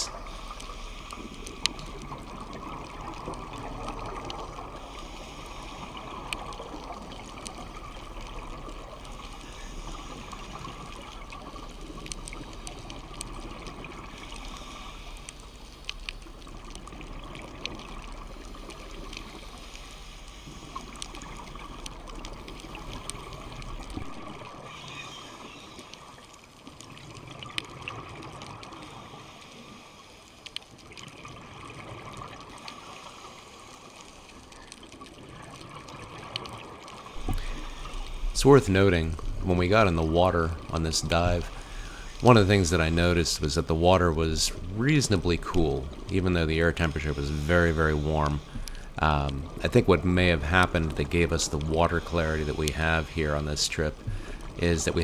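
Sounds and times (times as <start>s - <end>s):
faint clicks: 0.0s - 43.6s, 44.4s - 55.0s
underwater rushing water: 0.0s - 55.0s
low hum: 37.2s - 51.8s.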